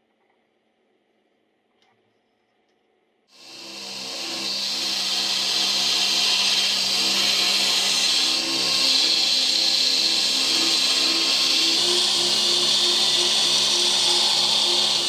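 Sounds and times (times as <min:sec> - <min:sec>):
belt grinder grinding steel: 0:03.4 - 0:15.0
motor hum: 0:03.4 - 0:15.0.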